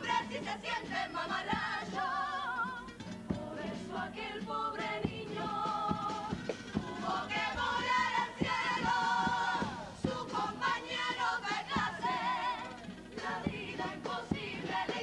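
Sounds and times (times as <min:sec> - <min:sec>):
choir singing in harmony: 0:00.0 - 0:15.0
guitar: 0:00.0 - 0:15.0
drum hits: 0:05.0 - 0:15.0.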